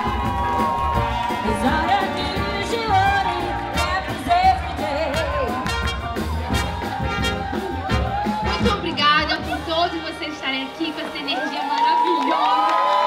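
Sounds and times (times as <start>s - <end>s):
pop song with singing: 0.0s - 6.0s.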